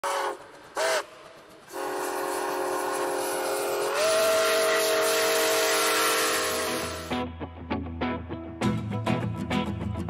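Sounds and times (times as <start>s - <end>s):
locomotive air horn: 0.0s - 7.2s.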